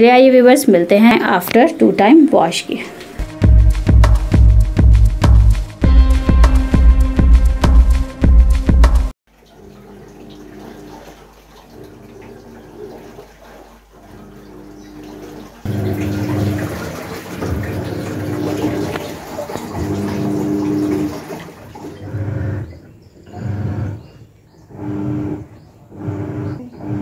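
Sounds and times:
washing machine motor humming: 0:00.0 - 0:27.0
water sloshing in drum: 0:09.3 - 0:27.0.

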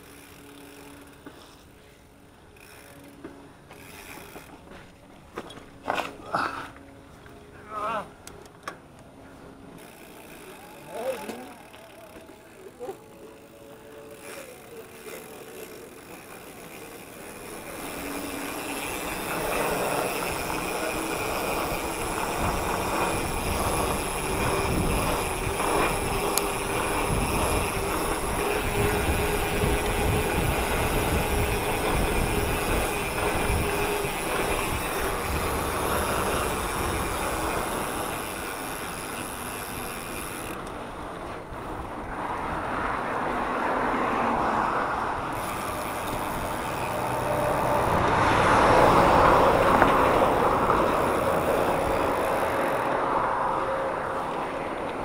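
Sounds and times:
bike tyre and road noise: 0:00.0 - 0:55.0
wind rumbling on microphone: 0:17.4 - 0:44.3.

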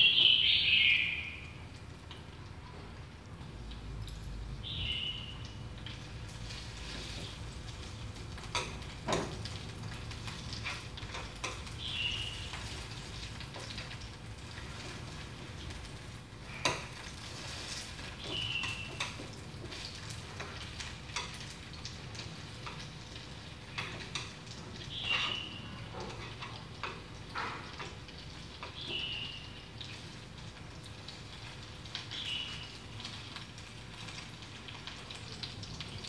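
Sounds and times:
chicken wings sizzling in pan: 0:01.2 - 0:36.0
chopsticks clicking against pan: 0:10.4 - 0:11.8.

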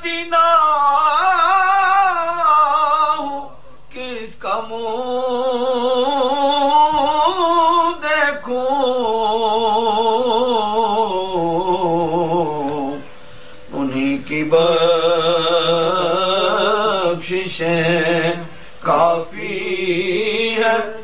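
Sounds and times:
man singing with vibrato: 0:00.0 - 0:21.0
singer breathing: 0:13.0 - 0:13.7, 0:18.5 - 0:18.8.

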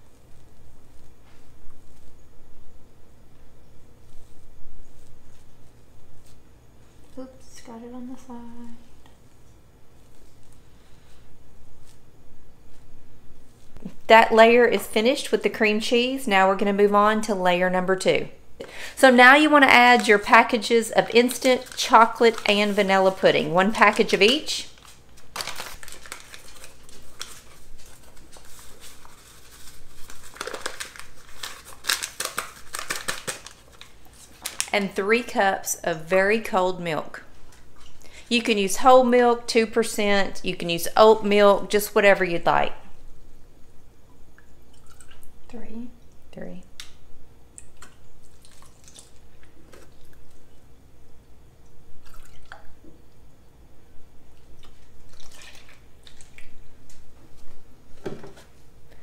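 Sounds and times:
paper pouch crinkling: 0:19.5 - 0:35.0
milk pouring and splashing: 0:44.4 - 0:45.4, 0:47.6 - 0:50.5, 0:52.0 - 0:52.8, 0:54.3 - 0:56.6.

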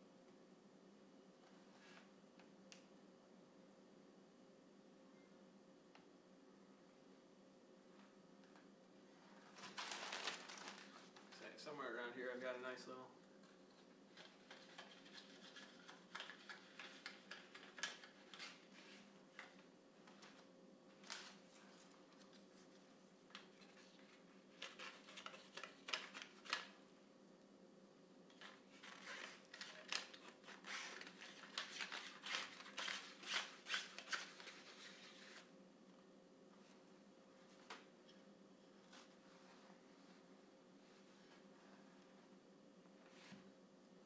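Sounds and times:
faint steady hum: 0:00.0 - 0:44.0.

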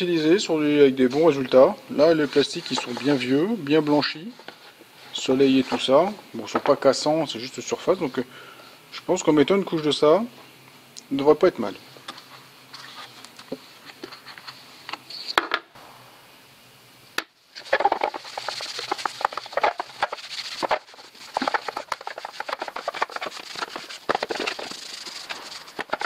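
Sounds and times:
rag scrubbing plastic: 0:02.1 - 0:03.6, 0:17.6 - 0:26.0.

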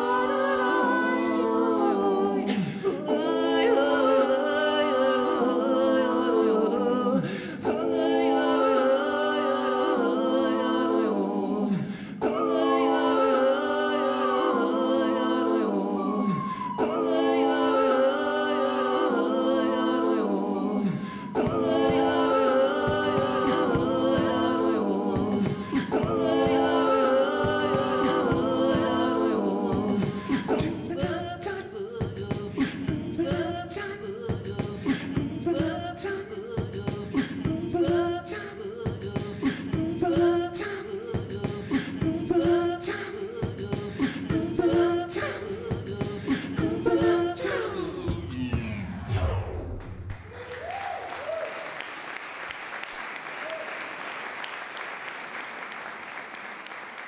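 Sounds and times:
layered sung vocal harmonies: 0:00.0 - 0:49.8
beatboxed percussion: 0:21.2 - 0:49.6.

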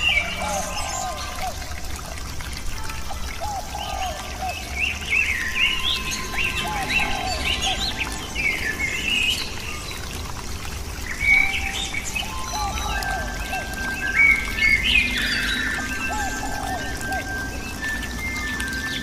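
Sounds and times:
birds chirping: 0:02.9 - 0:19.0.

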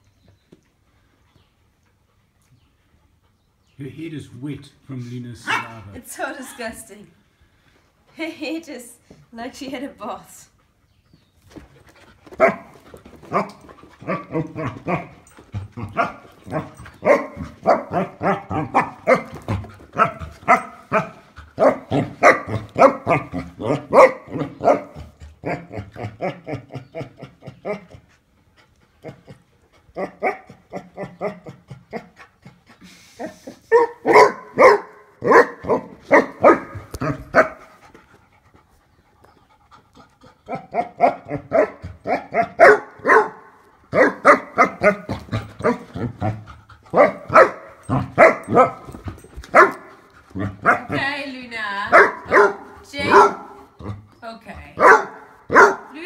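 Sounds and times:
dog barking rapidly: 0:05.4 - 0:05.9, 0:16.0 - 0:19.3, 0:20.0 - 0:25.0, 0:33.7 - 0:37.6, 0:40.5 - 0:45.9, 0:46.9 - 0:48.8, 0:49.5 - 0:49.9, 0:50.6 - 0:51.0, 0:51.9 - 0:53.6, 0:54.8 - 0:56.0.

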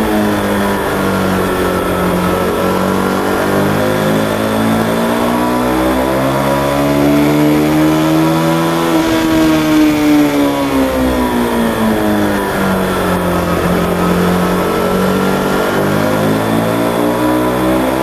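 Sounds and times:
motorcycle engine revving: 0:00.0 - 0:18.0
wind rush: 0:06.9 - 0:16.7.

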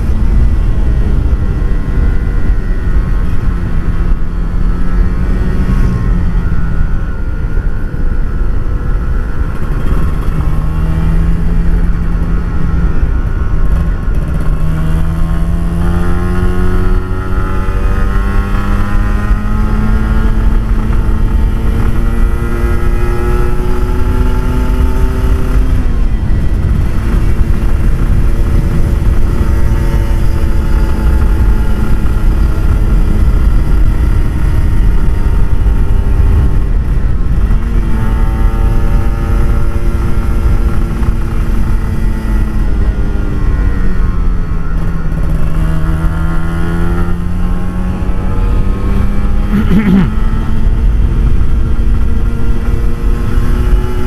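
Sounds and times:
two-stroke motorcycle engine: 0:00.0 - 0:54.0.

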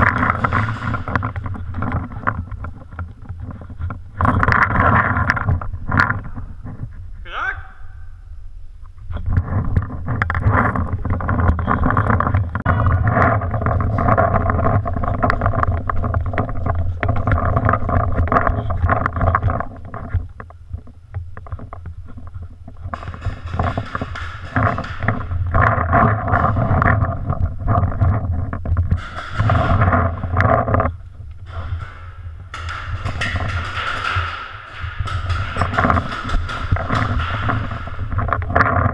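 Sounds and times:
muffled rumbling and rustling: 0:00.0 - 0:07.3, 0:08.3 - 0:38.9.

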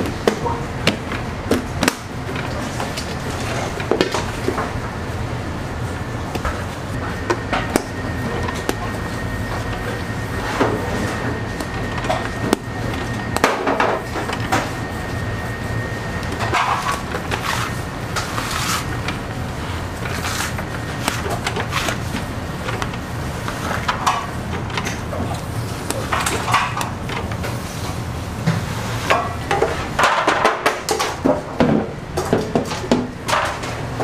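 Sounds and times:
steady low hum: 0:00.0 - 0:34.0
thin high whine: 0:04.5 - 0:26.7.

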